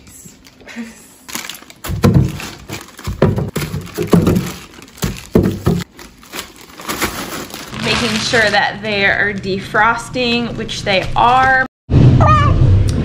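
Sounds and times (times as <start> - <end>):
plastic bags crinkling: 1.2 - 8.8
bags thudding into steel sink: 1.8 - 6.1.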